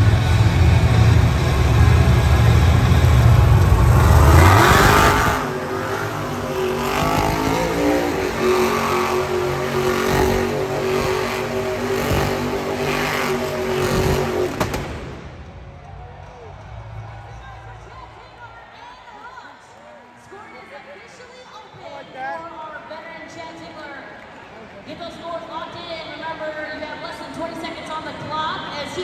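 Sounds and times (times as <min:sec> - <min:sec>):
monster truck engine revving: 0:00.0 - 0:15.3.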